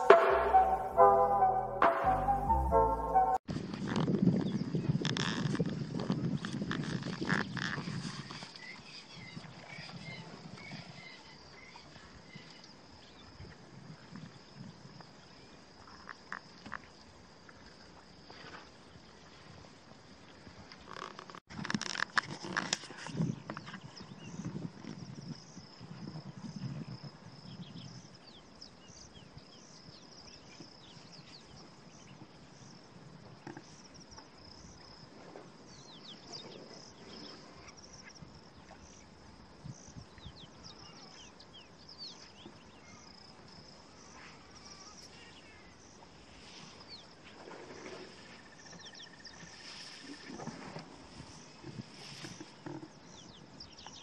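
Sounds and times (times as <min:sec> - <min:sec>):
insects trilling: 0:48.0 - 0:54.0.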